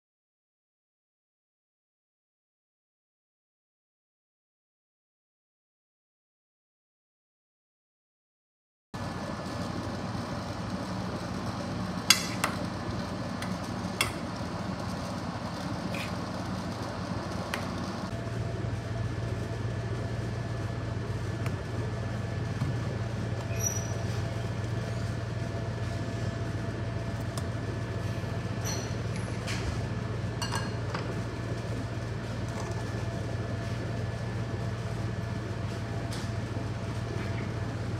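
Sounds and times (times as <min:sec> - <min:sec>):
kitchen appliance humming: 0:09.0 - 0:37.9.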